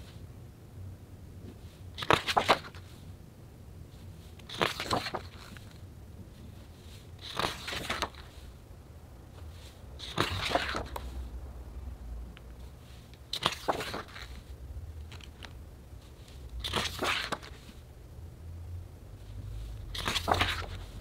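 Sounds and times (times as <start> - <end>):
heavy paper pages turning: 1.6 - 3.0, 4.2 - 8.6, 9.4 - 11.3, 12.6 - 17.8, 19.8 - 21.0.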